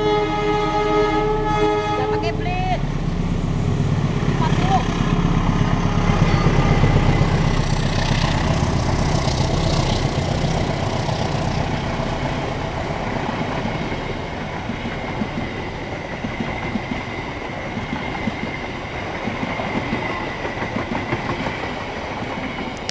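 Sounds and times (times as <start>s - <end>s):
heavy low rumble: 1.1s - 16.1s
train wheels clattering over rails: 4.2s - 22.9s.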